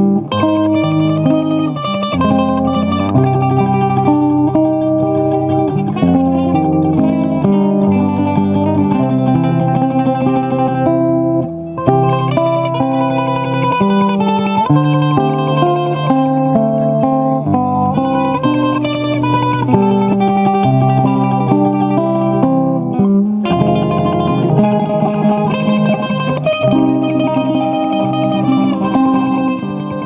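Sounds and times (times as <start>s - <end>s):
classical guitar chords: 0.0s - 30.0s
mandolin picked melody: 0.0s - 30.0s.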